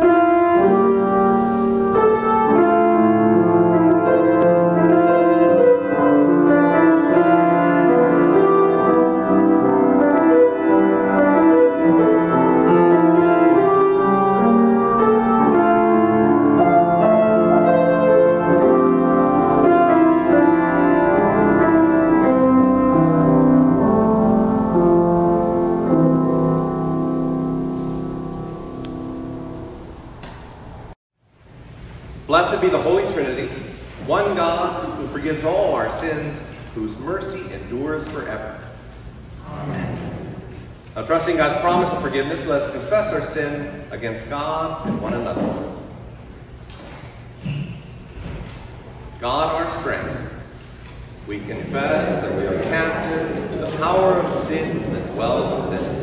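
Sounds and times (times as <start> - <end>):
slow keyboard chords: 0.0 - 31.0, 50.3 - 56.0.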